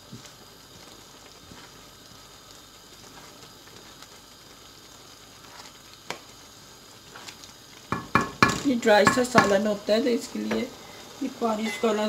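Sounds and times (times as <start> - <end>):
wooden spatula stirring: 0.0 - 6.4, 7.0 - 9.6
lentils sizzling in a pot: 0.0 - 12.0.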